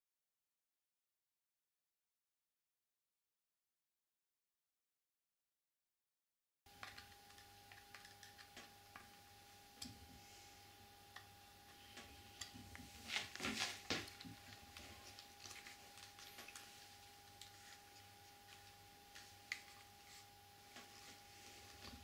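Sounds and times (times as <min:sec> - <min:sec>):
faint steady hum: 0:06.7 - 0:22.0.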